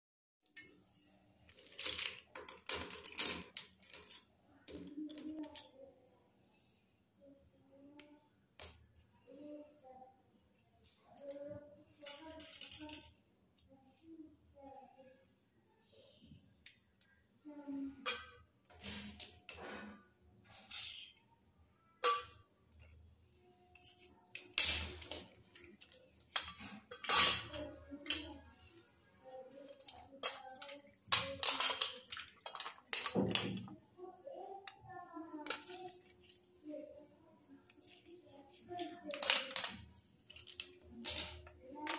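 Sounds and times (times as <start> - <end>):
pencils clattering on concrete: 0.5 - 5.8, 11.2 - 14.1, 17.9 - 21.2, 22.0 - 29.0, 29.6 - 33.8, 34.4 - 41.9.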